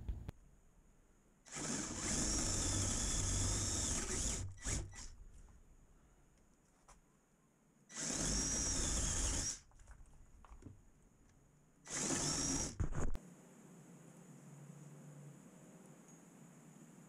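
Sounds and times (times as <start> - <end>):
cordless drill boring into wood: 1.5 - 5.1, 7.9 - 9.7, 11.9 - 12.9.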